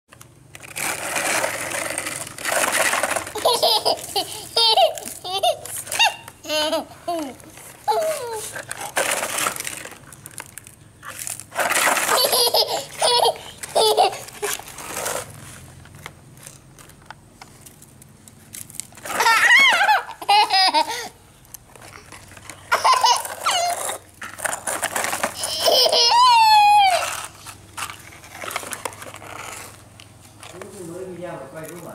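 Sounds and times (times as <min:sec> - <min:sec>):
toddler laughing: 0:03.4 - 0:08.9, 0:12.0 - 0:14.7, 0:19.1 - 0:21.2, 0:21.9 - 0:24.0, 0:25.3 - 0:27.4.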